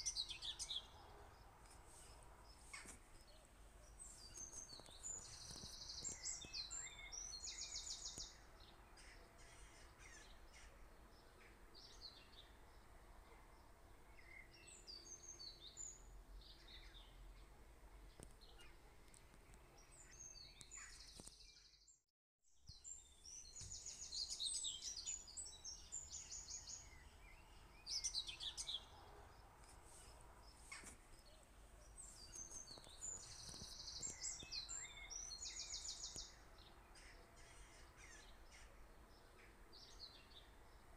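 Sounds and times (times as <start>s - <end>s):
bird chirps: 2.7s - 12.5s, 30.0s - 36.4s.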